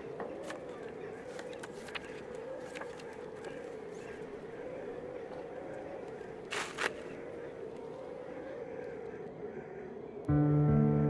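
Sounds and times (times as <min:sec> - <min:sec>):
paper rustling: 0:00.4 - 0:04.3, 0:06.4 - 0:07.1.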